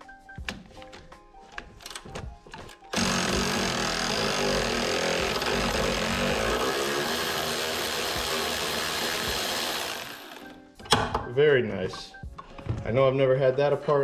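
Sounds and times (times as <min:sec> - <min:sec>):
power tool running under load: 0:02.9 - 0:10.6.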